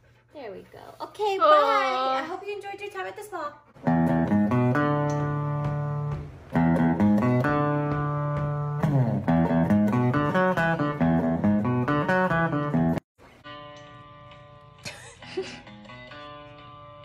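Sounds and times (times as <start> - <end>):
plucked guitar music: 3.8 - 17.0.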